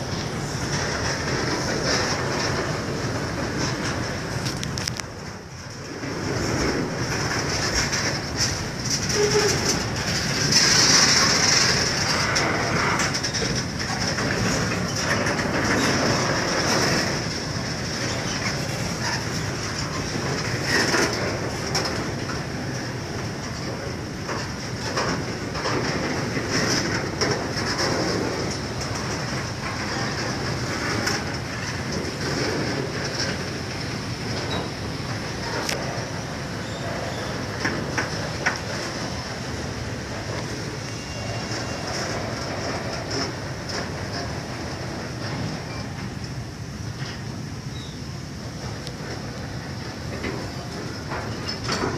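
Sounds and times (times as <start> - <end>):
train wheels clattering on rails: 0.0 - 51.9
high-pitched wheel squeal: 40.8 - 42.0.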